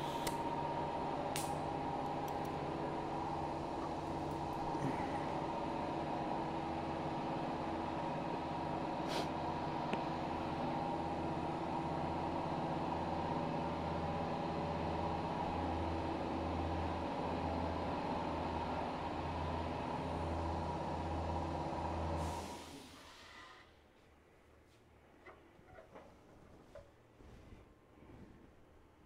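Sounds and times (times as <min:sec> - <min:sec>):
machine hum: 0:00.0 - 0:22.1.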